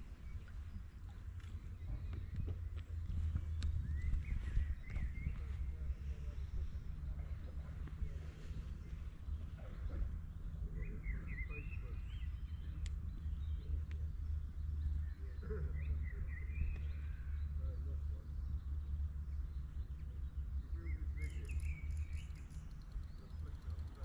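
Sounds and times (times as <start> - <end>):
songbird chirping: 0.0 - 24.0
wind rumble on microphone: 0.0 - 24.0.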